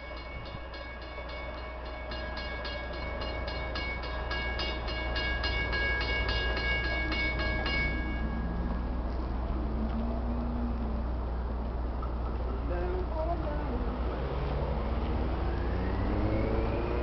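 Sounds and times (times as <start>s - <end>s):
locomotive bell ringing: 0.0s - 10.6s
low train rumble: 0.0s - 17.0s.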